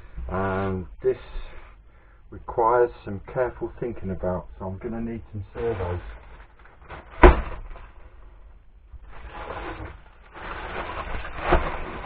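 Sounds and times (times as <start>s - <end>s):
plastic bag crinkling: 5.6s - 8.0s, 9.0s - 12.0s.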